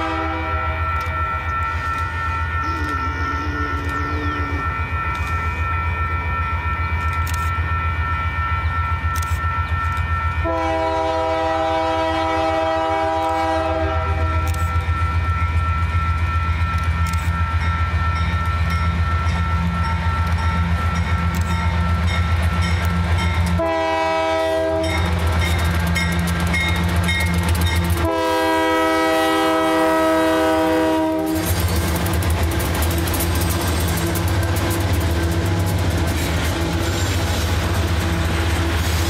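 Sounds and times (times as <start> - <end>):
train horn chord: 0.0 - 1.2, 2.4 - 4.8, 10.4 - 14.7, 23.5 - 25.1, 28.0 - 31.6
locomotive engine rumble and whine: 0.0 - 39.0.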